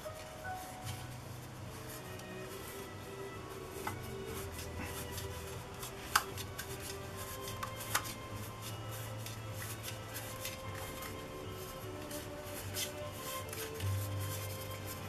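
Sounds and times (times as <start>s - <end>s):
quiet background music: 0.0s - 15.0s
plastic rubbing and small clicks: 5.0s - 8.5s.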